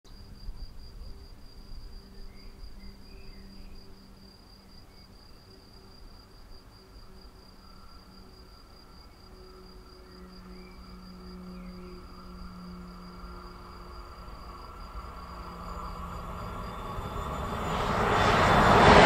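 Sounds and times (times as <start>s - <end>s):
crickets chirring: 0.1s - 19.0s.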